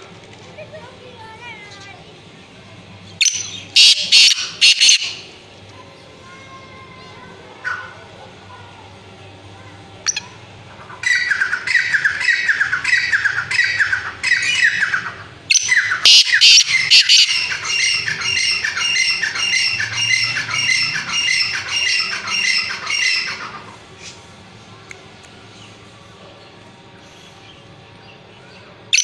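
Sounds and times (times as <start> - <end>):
francolin calling harsh notes: 3.2 - 5.4, 10.1 - 23.7.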